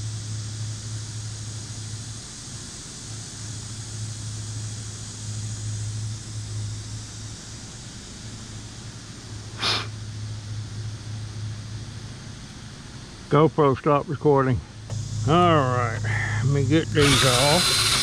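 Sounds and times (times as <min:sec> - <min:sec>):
faint hiss: 0:00.0 - 0:18.0
steady low hum: 0:00.0 - 0:18.0
sharp breath close to microphone: 0:09.6 - 0:10.0.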